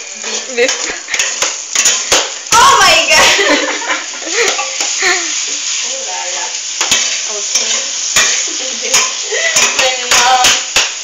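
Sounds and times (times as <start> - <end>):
sauce sizzling in a pan: 0.0 - 11.0
utensil knocking against pan: 6.8 - 11.0.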